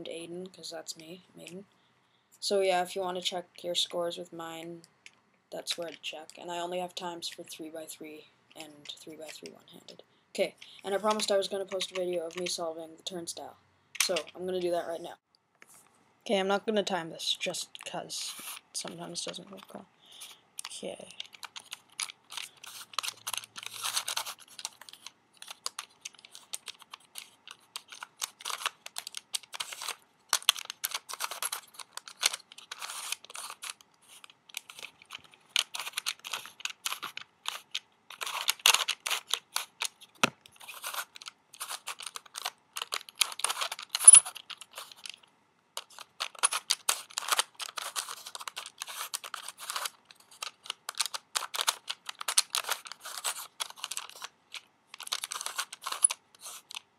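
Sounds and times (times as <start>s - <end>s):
plastic puzzle clicking and rattling: 10.6s - 12.6s, 14.0s - 14.7s, 18.5s - 56.9s.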